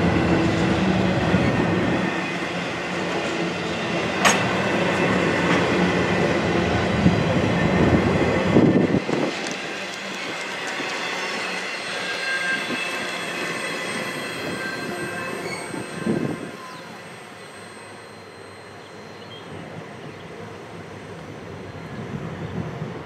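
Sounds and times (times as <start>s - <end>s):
high wheel squeal: 8.8s - 19.8s.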